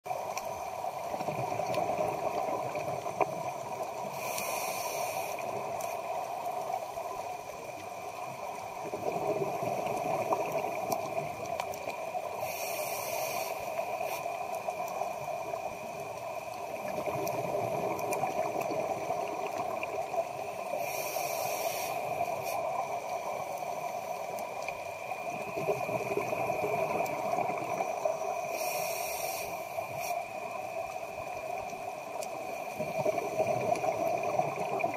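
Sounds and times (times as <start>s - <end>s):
exhaled air bubbling: 0.4s - 4.4s, 7.7s - 12.4s, 14.3s - 20.8s, 24.0s - 28.4s, 30.4s - 34.9s
regulator inhale hiss: 3.3s - 7.4s, 12.2s - 16.8s, 19.7s - 30.8s.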